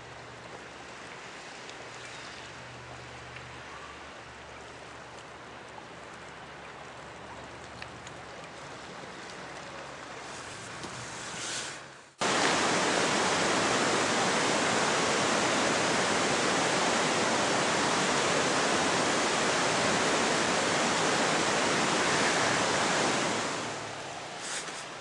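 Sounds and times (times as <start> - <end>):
white water rushing: 12.2 - 25.0.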